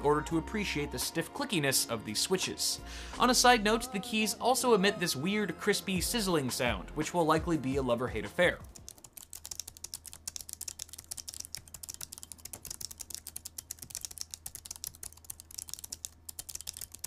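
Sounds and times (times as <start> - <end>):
fast typing on mechanical keyboard: 8.6 - 17.0.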